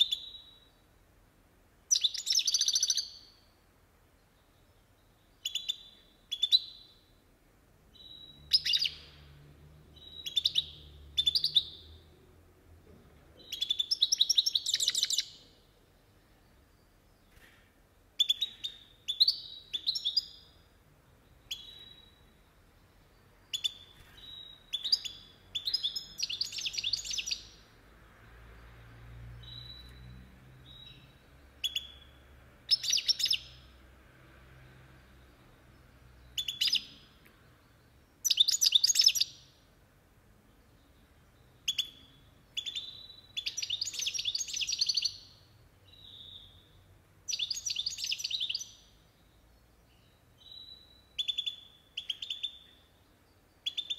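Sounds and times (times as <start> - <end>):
goldfinch twittering song: 0.0 - 0.8, 1.9 - 3.5, 4.4 - 7.0, 7.9 - 9.4, 10.0 - 12.1, 13.4 - 15.6, 18.2 - 20.6, 21.2 - 27.7, 29.4 - 33.7, 35.4 - 39.6, 40.6 - 53.9.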